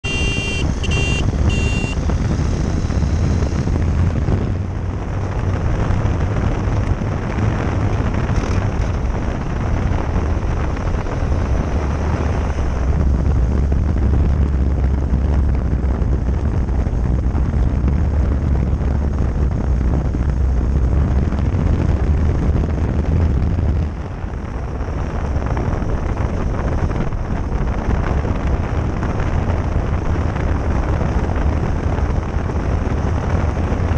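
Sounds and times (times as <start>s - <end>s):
short high tones: 0.0s - 2.0s
motorcycle engine and tyre rumble: 0.0s - 33.9s
wind rushing over microphone: 0.0s - 33.9s.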